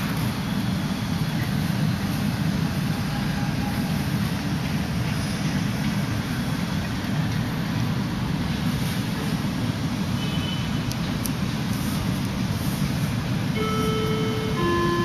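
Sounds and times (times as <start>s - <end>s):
low rumbling background noise: 0.0s - 15.0s.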